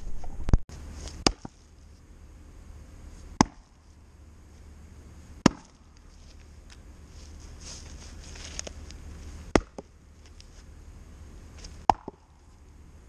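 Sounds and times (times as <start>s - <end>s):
axe chopping wood: 1.1s - 1.6s, 3.4s - 3.8s, 5.4s - 6.0s, 9.5s - 10.0s, 11.8s - 12.3s.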